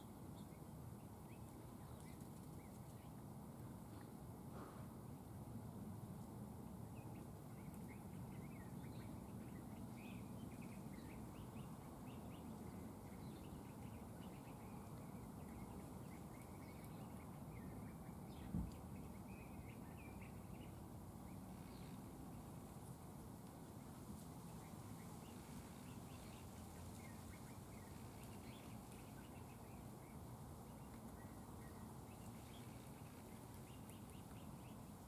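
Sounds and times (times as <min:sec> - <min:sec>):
low background hum: 0:00.0 - 0:35.0
small birds chirping: 0:00.0 - 0:35.0
low thump: 0:18.5 - 0:18.8.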